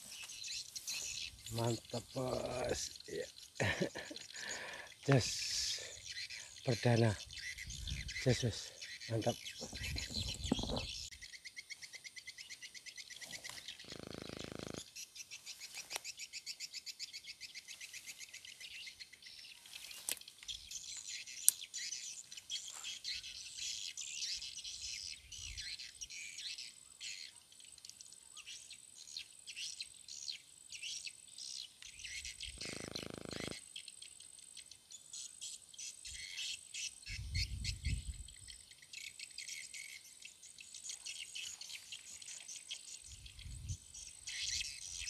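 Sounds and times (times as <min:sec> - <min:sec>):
pulsing insect trill: 0:00.0 - 0:11.2, 0:13.0 - 0:15.1, 0:32.0 - 0:34.2.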